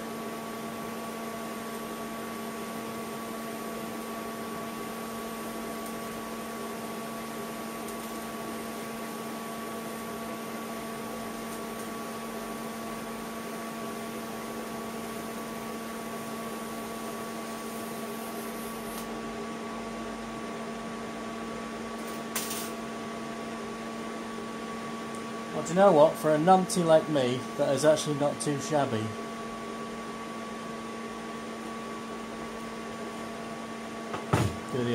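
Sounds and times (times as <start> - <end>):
electrical hum from welder: 0.0 - 34.9
welding arc hissing: 0.9 - 10.2, 11.0 - 19.1.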